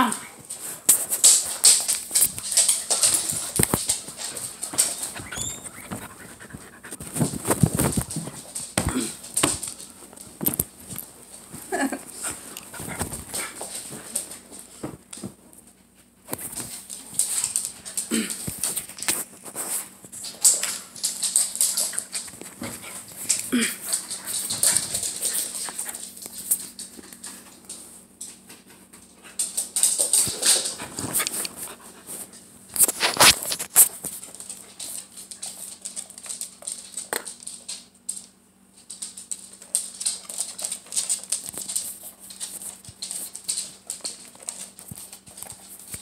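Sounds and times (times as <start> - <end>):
dog sniffing and snuffling: 0.5 - 9.1, 16.7 - 20.3, 30.2 - 36.0.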